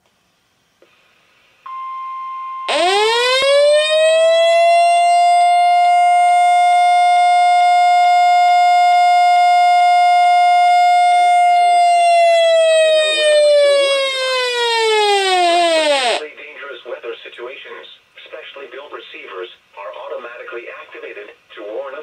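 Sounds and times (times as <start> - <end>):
steady warning alarm tone: 1.7 - 16.2
siren wailing: 2.7 - 16.2.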